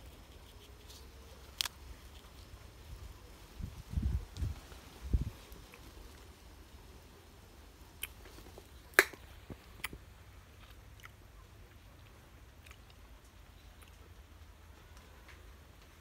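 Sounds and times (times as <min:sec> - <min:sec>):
fruit crunching while chewing: 0:08.0 - 0:11.3, 0:12.0 - 0:13.1.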